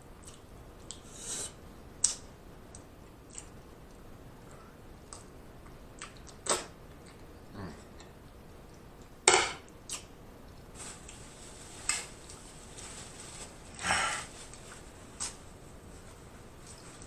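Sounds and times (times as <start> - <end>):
wet mouth smacks chewing: 9.9 - 10.1.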